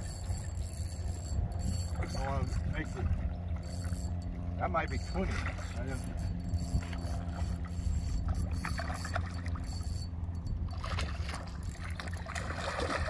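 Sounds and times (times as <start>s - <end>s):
steady low hum: 0.0s - 13.0s
fish splashing in water: 10.7s - 13.0s.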